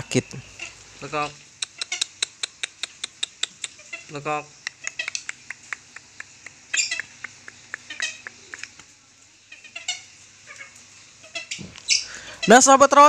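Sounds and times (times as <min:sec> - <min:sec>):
bird giving sharp kekek calls: 0:00.0 - 0:08.8, 0:09.5 - 0:12.6.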